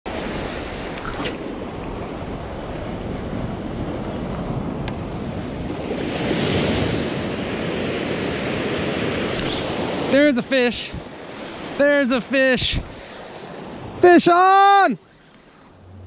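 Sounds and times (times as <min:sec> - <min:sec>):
wind buffeting microphone: 0:00.1 - 0:10.1, 0:12.6 - 0:14.0
ocean surf washing in: 0:00.1 - 0:16.0.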